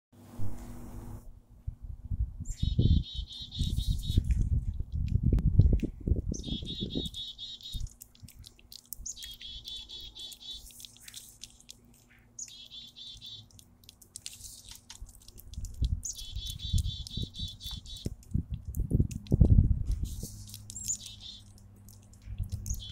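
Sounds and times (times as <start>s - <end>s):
songbird singing trills: 2.4s - 4.5s, 5.6s - 19.1s, 20.0s - 22.9s
cat licking clicks: 7.0s - 22.9s
low rumbling noise: 15.6s - 20.7s.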